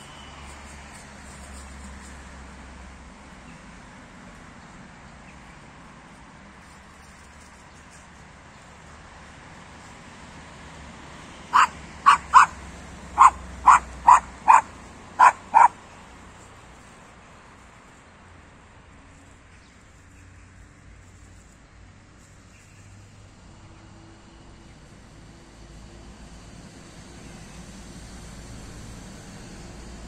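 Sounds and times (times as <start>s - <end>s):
dog barking: 11.5s - 12.6s, 13.2s - 15.8s.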